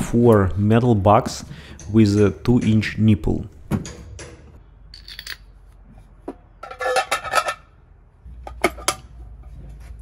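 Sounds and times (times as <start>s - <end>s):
metal tools clattering: 3.8s - 5.6s, 6.6s - 7.8s.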